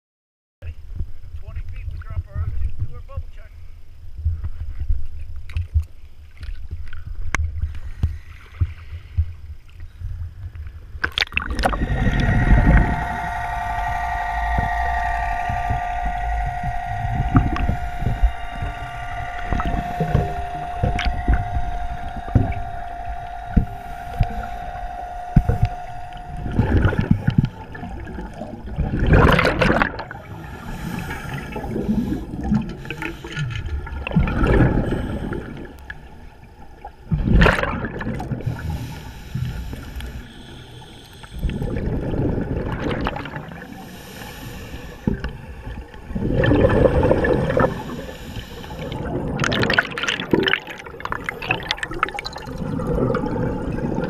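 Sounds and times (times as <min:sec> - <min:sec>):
regulator breathing underwater: 0:07.6 - 0:09.6, 0:11.4 - 0:37.4, 0:38.2 - 0:54.0
bubbles gurgling: 0:11.1 - 0:38.9, 0:41.4 - 0:43.8, 0:45.1 - 0:54.0
steady whine: 0:11.4 - 0:54.0.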